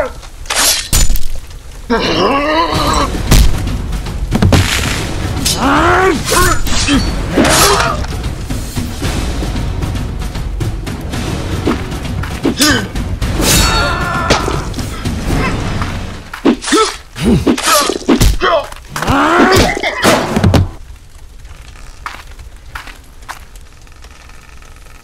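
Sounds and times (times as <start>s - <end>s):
music: 1.5s - 21.2s
pained cries and grunts: 1.8s - 3.2s, 5.5s - 8.1s, 12.5s - 15.7s, 16.6s - 20.2s
heavy thuds and blows: 3.2s - 5.4s, 19.0s - 20.8s.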